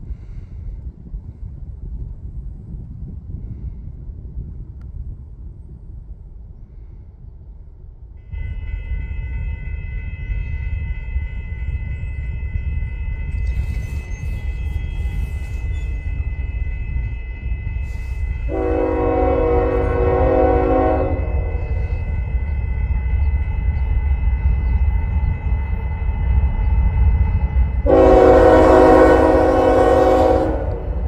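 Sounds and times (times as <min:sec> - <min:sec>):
freight train rumble: 0:00.0 - 0:31.0
locomotive air horn: 0:08.2 - 0:16.0, 0:16.7 - 0:22.4, 0:27.8 - 0:31.0
high ringing tone: 0:08.2 - 0:18.6, 0:20.9 - 0:27.8.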